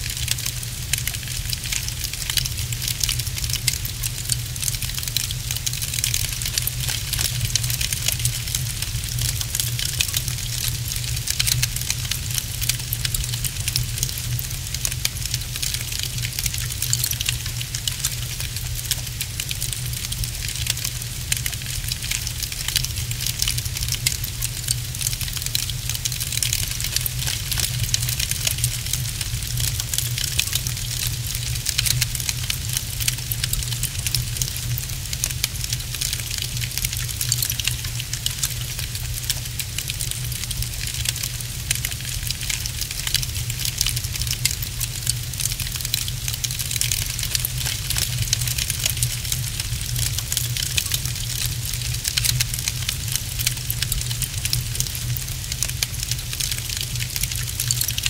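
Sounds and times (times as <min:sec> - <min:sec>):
log fire crackling: 0:00.0 - 0:58.0.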